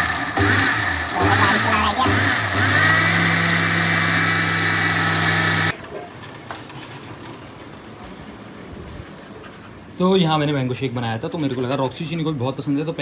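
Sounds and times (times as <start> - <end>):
mixer grinder motor whining: 0.0 - 5.8.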